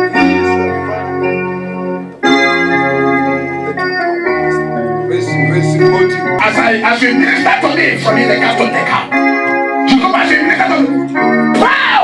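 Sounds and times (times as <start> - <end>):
organ playing held chords: 0.0 - 11.8.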